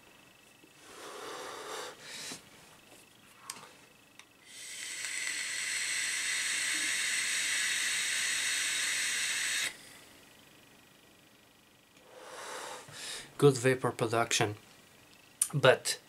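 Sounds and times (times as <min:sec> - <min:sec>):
hiss of air through vape tank: 0:04.5 - 0:09.8.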